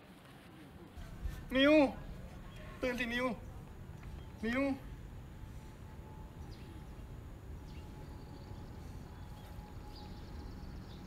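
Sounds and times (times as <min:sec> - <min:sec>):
faint bird chirps: 0:05.6 - 0:11.0.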